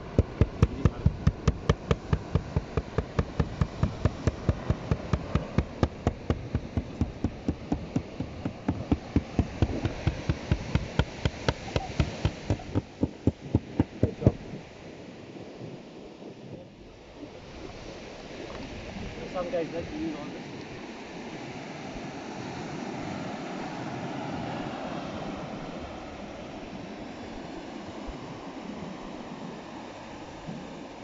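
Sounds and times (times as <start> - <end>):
mallet knocking on plastic lid: 0.1 - 14.4.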